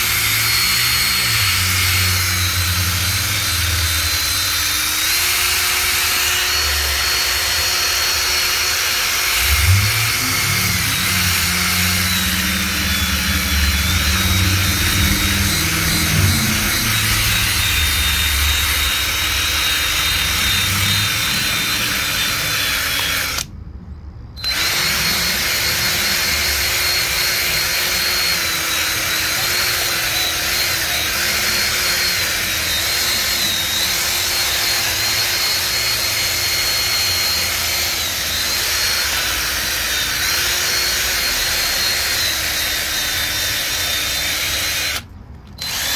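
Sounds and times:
power tool running: 0.0 - 23.6, 24.4 - 45.9
low drone: 9.2 - 28.5.

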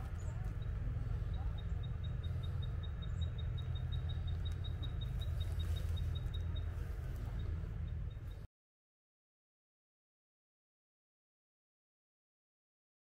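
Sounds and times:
steady low rumble: 0.0 - 8.5
rapid high-pitched chirping: 0.2 - 8.4.

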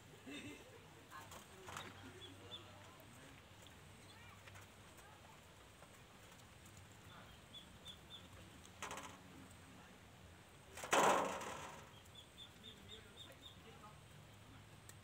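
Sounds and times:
small bird chirping: 1.6 - 3.1, 6.9 - 8.8, 11.8 - 14.0.

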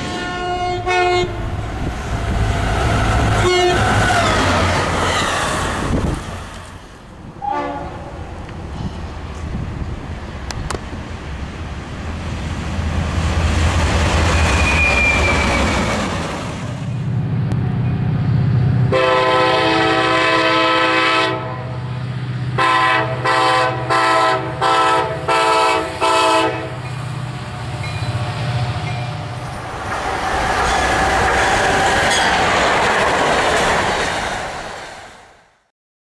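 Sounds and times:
locomotive air horn blasts: 0.0 - 1.4, 3.4 - 4.1, 7.4 - 8.0, 18.9 - 21.8, 22.6 - 26.8
locomotive engine rumbling: 0.0 - 34.9.

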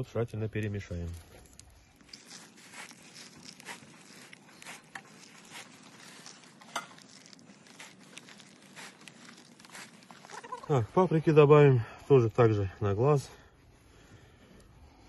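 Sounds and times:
hands kneading minced meat: 0.6 - 11.2.

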